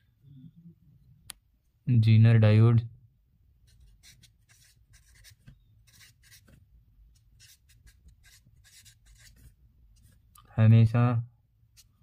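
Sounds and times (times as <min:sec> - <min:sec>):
marker scratching on paper: 0:03.6 - 0:10.2, 0:11.7 - 0:12.0.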